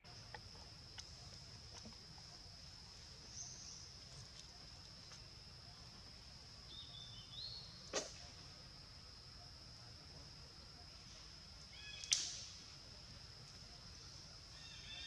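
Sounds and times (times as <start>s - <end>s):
sharp click: 12.0s - 12.5s.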